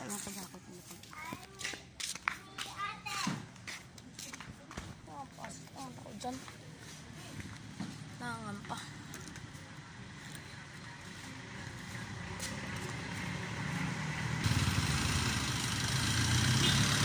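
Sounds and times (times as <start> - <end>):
vehicle engine running: 9.5 - 17.0.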